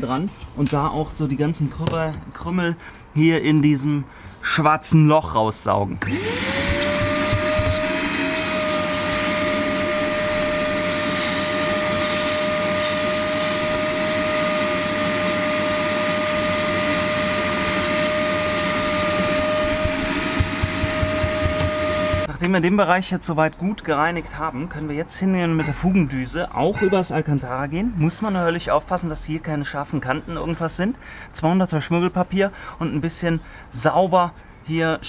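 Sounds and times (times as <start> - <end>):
vacuum cleaner motor whining: 6.0 - 22.3.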